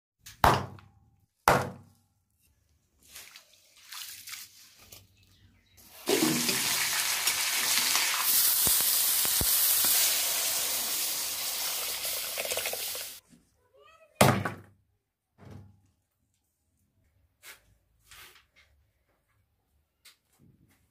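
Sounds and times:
meat sizzling in a pan: 6.0 - 13.2.

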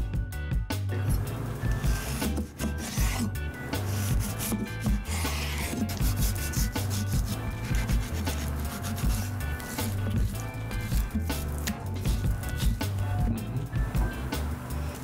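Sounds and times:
knife slicing meat on wooden board: 1.7 - 13.1.

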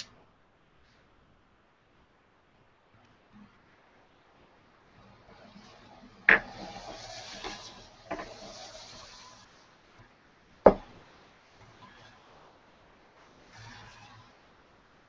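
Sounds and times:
rustling hiss: 5.0 - 9.9.

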